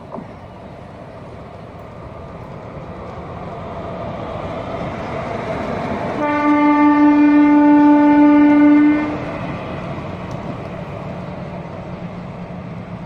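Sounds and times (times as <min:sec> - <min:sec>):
train wheels rumbling on rails: 0:00.0 - 0:13.0
train horn blast: 0:06.2 - 0:09.4.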